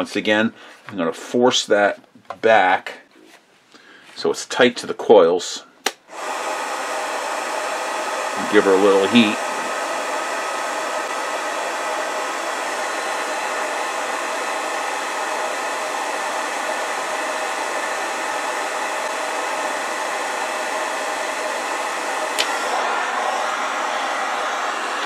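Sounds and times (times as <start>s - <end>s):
heat gun blowing: 5.8s - 25.0s.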